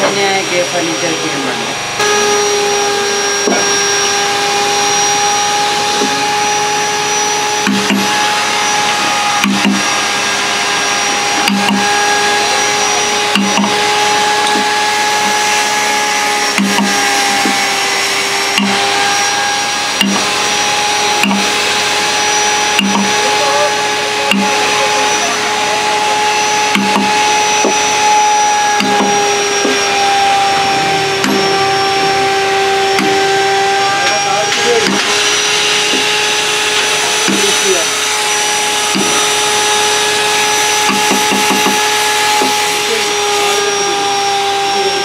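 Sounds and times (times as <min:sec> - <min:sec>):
machine drone with whine: 0:00.0 - 0:45.0
mallet striking chisel: 0:03.4 - 0:03.8, 0:07.6 - 0:08.2, 0:09.4 - 0:09.9, 0:11.4 - 0:12.0, 0:13.4 - 0:14.8, 0:16.5 - 0:17.8, 0:18.5 - 0:19.1, 0:20.0 - 0:20.4, 0:21.2 - 0:21.6, 0:22.8 - 0:23.2, 0:24.3 - 0:24.6, 0:26.7 - 0:30.1, 0:31.2 - 0:31.6, 0:32.9 - 0:33.4, 0:34.8 - 0:36.6, 0:37.2 - 0:38.1, 0:38.9 - 0:39.8, 0:40.7 - 0:42.7.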